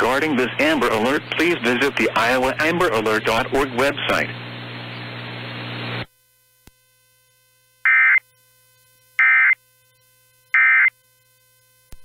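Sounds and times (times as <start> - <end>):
radio hiss: 0.0 - 6.1.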